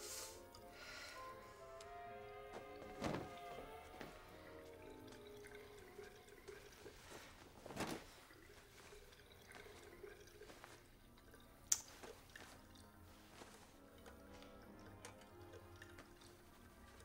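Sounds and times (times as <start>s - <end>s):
faint dripping water: 0.4s - 17.0s.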